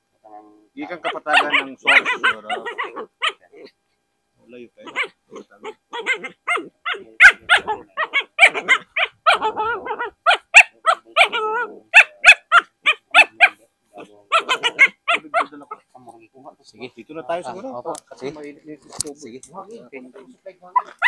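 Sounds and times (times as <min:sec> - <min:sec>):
dog barking loudly: 0:00.8 - 0:03.5, 0:04.8 - 0:15.8, 0:20.2 - 0:21.0.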